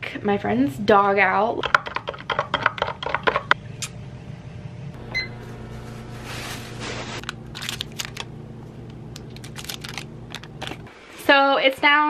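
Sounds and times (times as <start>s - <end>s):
low hum: 3.5s - 11.0s.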